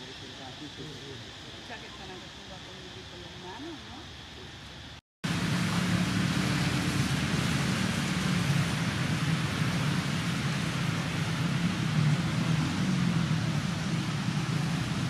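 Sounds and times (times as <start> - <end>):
even hiss: 0.0 - 15.0
low hum: 5.2 - 15.0.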